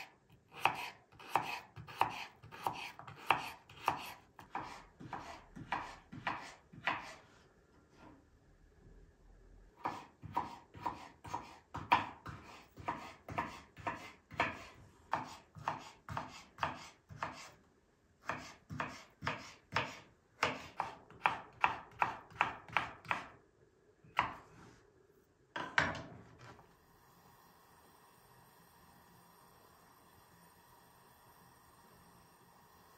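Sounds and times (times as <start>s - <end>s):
knife chopping on wooden board: 0.5s - 7.2s, 9.8s - 17.5s, 18.2s - 23.3s.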